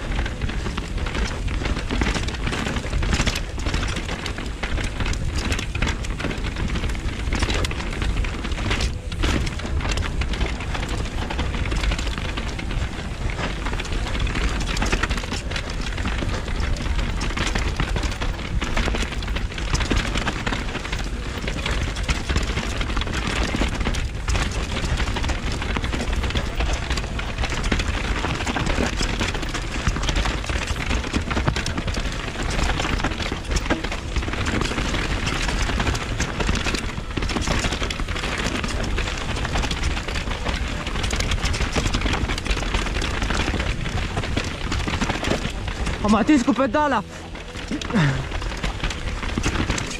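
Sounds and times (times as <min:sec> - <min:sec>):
mountain bike rattling over trail: 0:00.0 - 0:49.9.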